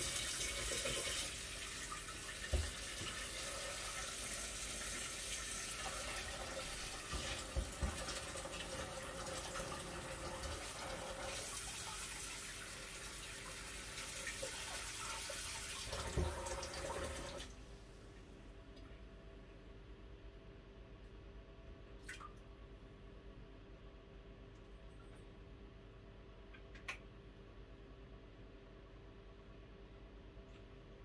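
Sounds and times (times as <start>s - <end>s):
water running: 0.0s - 17.6s.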